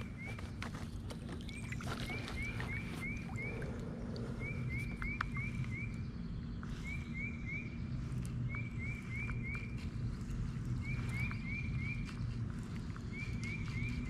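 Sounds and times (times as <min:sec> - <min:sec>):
steady low hum: 0:00.0 - 0:14.0
songbird whistling: 0:01.5 - 0:03.7, 0:04.3 - 0:09.8, 0:10.8 - 0:12.2, 0:13.1 - 0:14.0.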